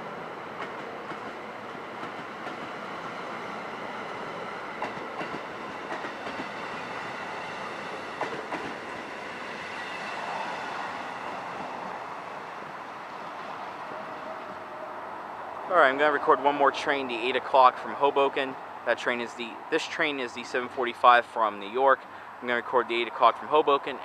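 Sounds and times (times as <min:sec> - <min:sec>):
train wheels rumbling on rail: 0:00.0 - 0:15.2
wheels clicking over rail joints: 0:04.8 - 0:09.2.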